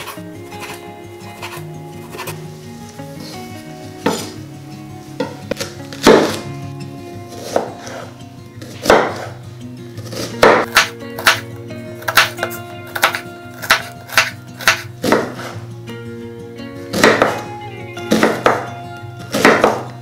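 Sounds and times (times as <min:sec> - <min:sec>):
background music: 0:00.0 - 0:20.0
knife chopping on wooden board: 0:05.2 - 0:06.4, 0:07.4 - 0:07.8, 0:08.8 - 0:09.3, 0:10.1 - 0:11.4, 0:12.0 - 0:15.5, 0:17.0 - 0:17.5, 0:18.1 - 0:18.6, 0:19.4 - 0:19.9.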